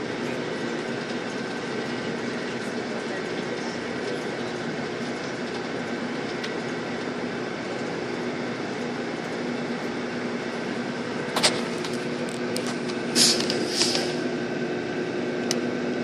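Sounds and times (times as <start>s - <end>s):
bus engine and ventilation hum: 0.0s - 16.0s
short hisses: 13.1s - 14.2s.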